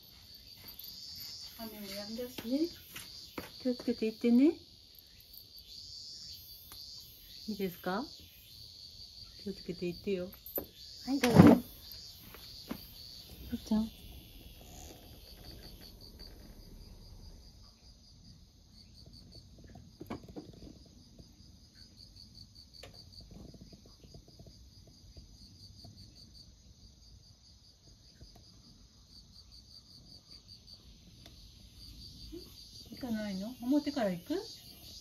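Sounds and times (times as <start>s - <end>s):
insect chirping: 0.0s - 35.0s
low outdoor rumble: 13.3s - 18.3s.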